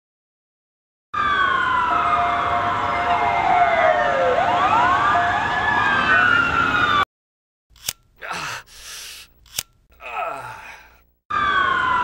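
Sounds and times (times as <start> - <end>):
police sirens wailing: 1.2 - 7.1, 11.3 - 12.0.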